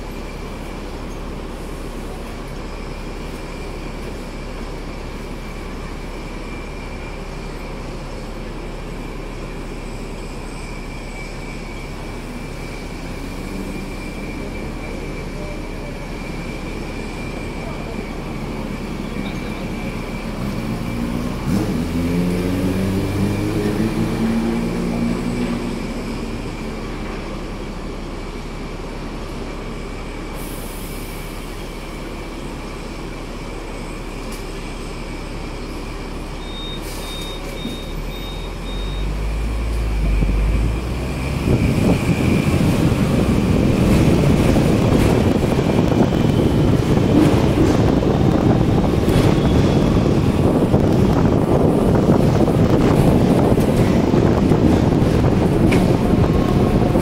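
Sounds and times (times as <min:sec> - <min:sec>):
street traffic: 0:00.0 - 0:57.0
tram rumbling on rails: 0:00.0 - 0:57.0
engine revving: 0:21.1 - 0:25.6
high beeps: 0:36.4 - 0:39.2.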